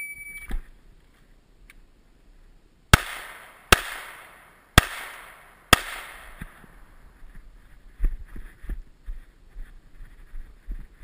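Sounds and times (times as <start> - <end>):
shot timer beep: 0.0 - 0.5
handgun shots: 3.0 - 6.6.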